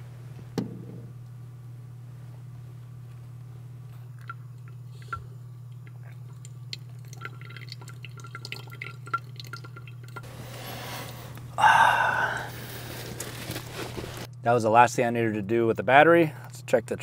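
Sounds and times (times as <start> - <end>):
steady low hum: 0.0 - 17.0
water trickling onto coffee grounds: 4.1 - 10.3.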